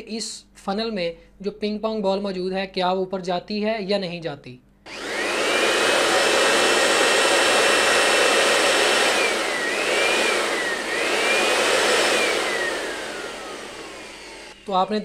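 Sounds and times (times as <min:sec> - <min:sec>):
electric air blower whining: 0:04.9 - 0:15.0.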